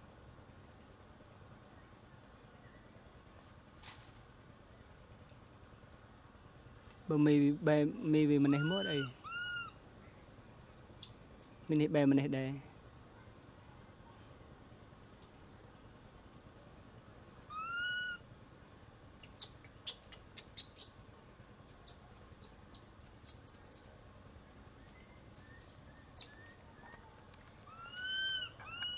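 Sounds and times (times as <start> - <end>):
infant monkey cooing: 8.4 - 9.8, 17.5 - 18.2, 27.7 - 28.9.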